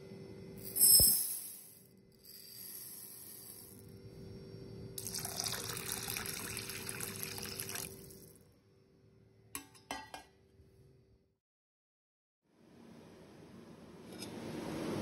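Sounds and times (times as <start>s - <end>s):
water pouring into glass bowl: 5.0s - 8.3s.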